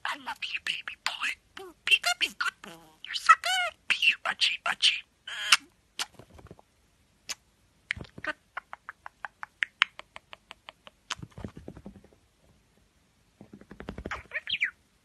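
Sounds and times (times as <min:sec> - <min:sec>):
budgerigar chirps and clicks: 0:07.3 - 0:11.2.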